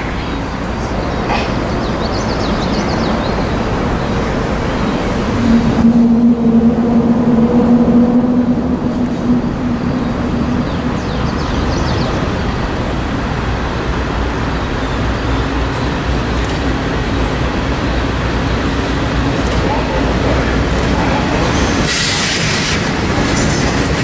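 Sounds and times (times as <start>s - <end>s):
road traffic rumble: 0.0s - 24.0s
distant locomotive horn: 5.2s - 12.2s.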